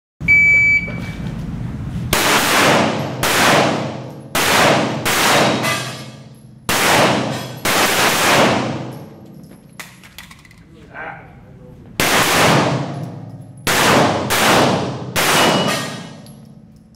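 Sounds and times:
shot timer beep: 0:00.2 - 0:01.1
handgun shots echoing: 0:02.2 - 0:10.5, 0:12.0 - 0:16.4.

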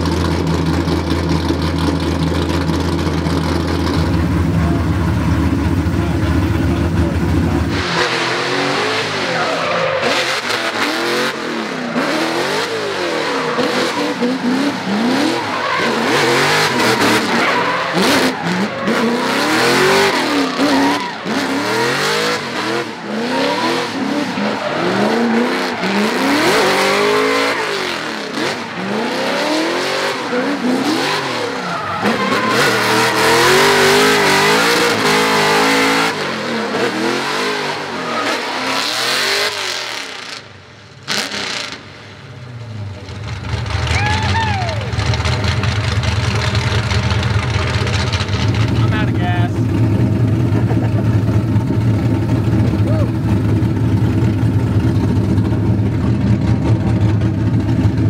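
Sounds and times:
car engine revving: 0:00.0 - 0:58.0
tyres squealing on pavement: 0:08.9 - 0:10.7, 0:13.0 - 0:21.6, 0:31.2 - 0:34.6, 0:37.8 - 0:38.9, 0:43.8 - 0:48.9.

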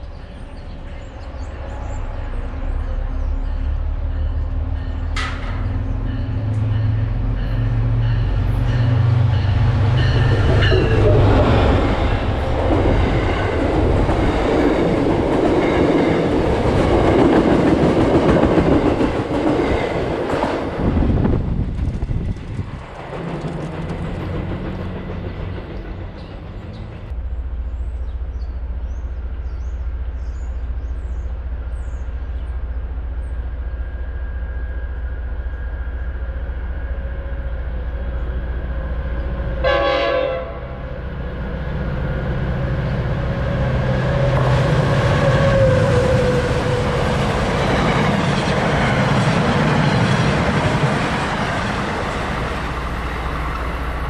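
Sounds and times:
train passing: 0:00.0 - 0:54.0
train horn blast: 0:03.6 - 0:12.5, 0:39.5 - 0:41.0.

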